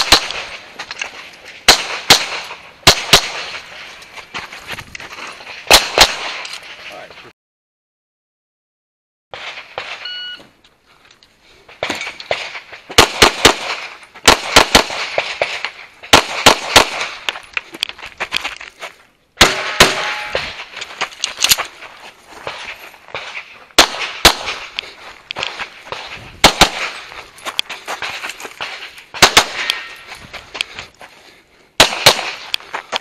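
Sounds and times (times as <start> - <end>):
pistol shots: 0.0 - 0.7, 1.6 - 3.7, 5.7 - 6.5, 11.8 - 17.3, 19.4 - 20.7, 23.1 - 24.8, 25.4 - 27.1, 28.6 - 30.0, 31.8 - 32.5.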